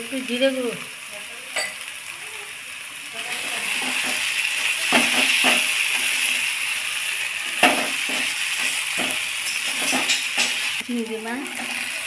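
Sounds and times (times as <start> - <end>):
spices sizzling in oil: 0.0 - 12.0
spatula scraping pan: 3.3 - 6.6, 7.5 - 10.8.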